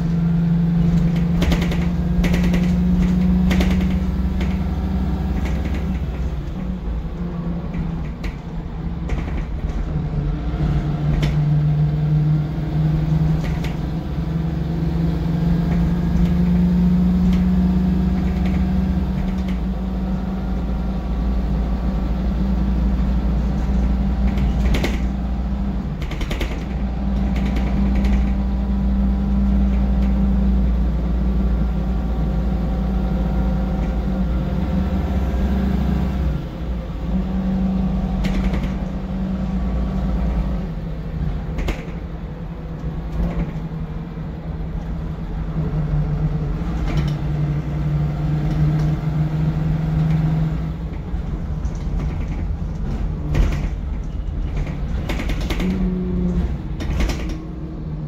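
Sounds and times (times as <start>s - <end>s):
bus diesel engine rumbling: 0.0s - 58.0s
bodywork rattles and knocks: 0.7s - 6.9s, 7.5s - 10.2s, 22.9s - 28.7s, 38.0s - 39.4s, 41.3s - 42.2s, 50.9s - 57.7s.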